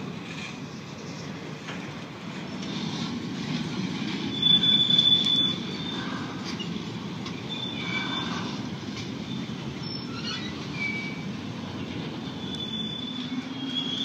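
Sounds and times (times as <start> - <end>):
train wheels rumbling on rail: 0.0 - 14.0
high wheel squeal: 4.2 - 6.8, 7.4 - 11.5, 12.1 - 14.0.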